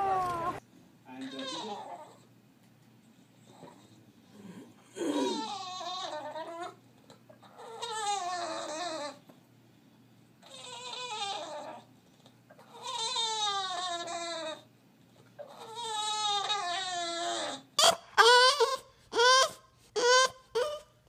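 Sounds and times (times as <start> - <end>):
dog howling in crying whines: 0.0 - 0.6, 15.4 - 21.0.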